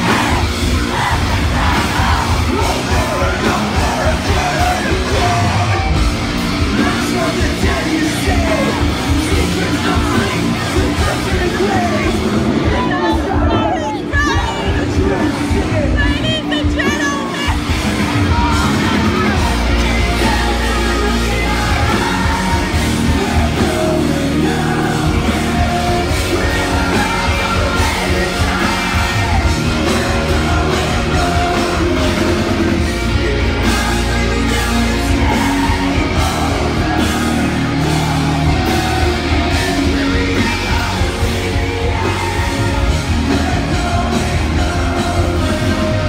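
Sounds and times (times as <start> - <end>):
live heavy rock band: 0.0 - 46.0
sung and shouted vocals: 0.0 - 46.0.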